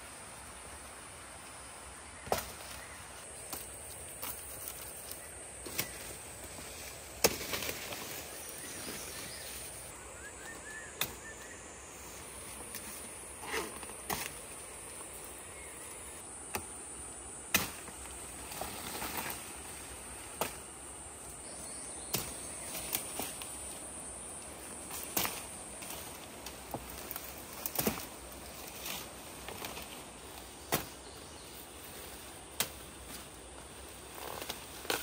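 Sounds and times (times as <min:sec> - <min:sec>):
high insect drone: 0:00.0 - 0:35.0
machete chopping stalks: 0:02.2 - 0:04.8, 0:05.6 - 0:06.2, 0:07.1 - 0:08.2, 0:10.9 - 0:11.3, 0:12.5 - 0:14.5, 0:16.4 - 0:16.8, 0:17.4 - 0:19.4, 0:20.3 - 0:20.7, 0:22.0 - 0:23.5, 0:24.8 - 0:30.0, 0:30.6 - 0:31.0, 0:32.5 - 0:33.3, 0:34.2 - 0:35.0.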